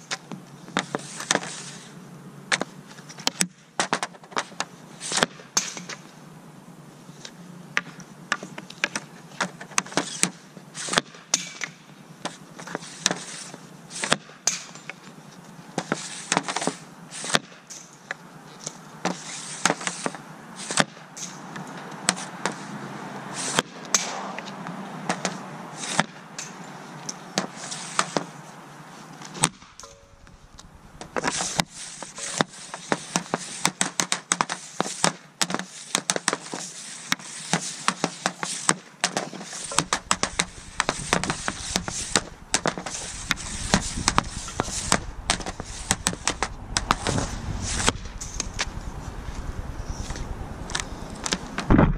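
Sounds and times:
hockey stick clacking against puck: 0:14.0 - 0:15.0, 0:25.1 - 0:28.3, 0:32.1 - 0:39.9.

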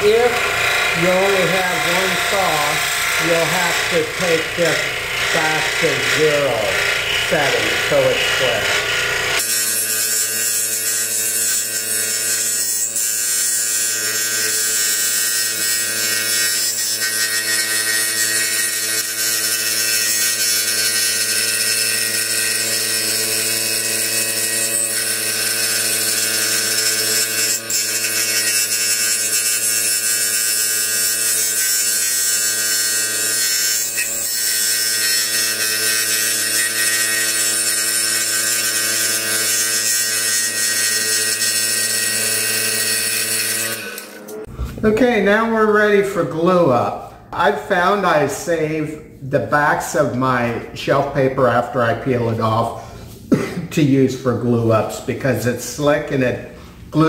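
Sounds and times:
scroll saw cutting wood: 0:00.0 - 0:44.8.

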